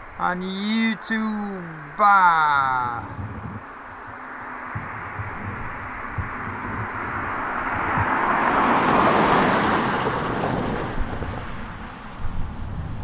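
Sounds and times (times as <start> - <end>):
freight train passing: 3.8 - 12.7.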